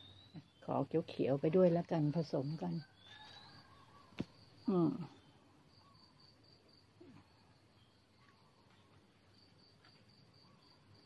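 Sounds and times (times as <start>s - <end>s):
insect chirping: 0.0s - 0.6s, 2.8s - 11.0s.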